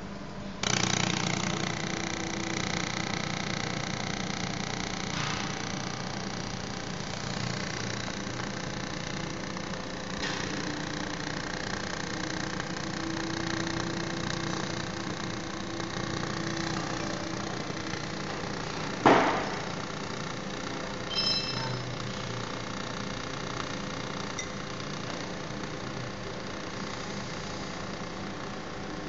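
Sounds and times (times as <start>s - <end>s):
laser welding machine humming: 0.0s - 29.0s
loud ringing knock: 19.0s - 19.6s
short high metallic ring: 21.1s - 21.8s.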